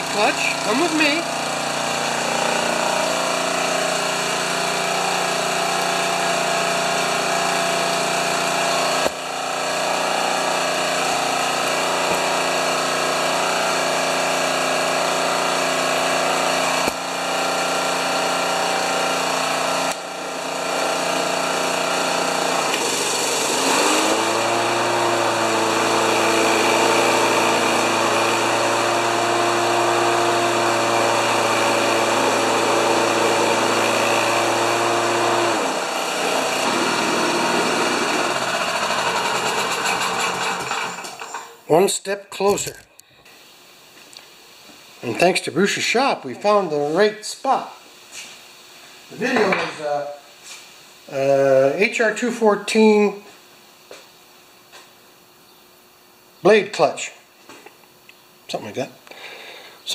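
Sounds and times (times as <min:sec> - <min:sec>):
lawn mower engine running: 0:00.0 - 0:41.7.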